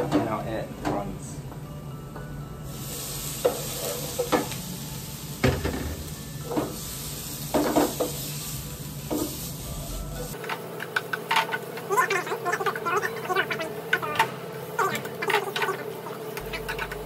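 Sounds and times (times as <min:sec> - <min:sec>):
prawns sizzling in hot oil: 0:02.7 - 0:13.9.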